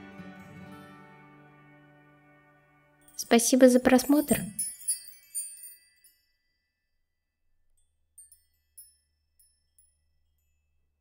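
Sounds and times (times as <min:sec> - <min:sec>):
chime-like music notes: 0:03.0 - 0:06.9.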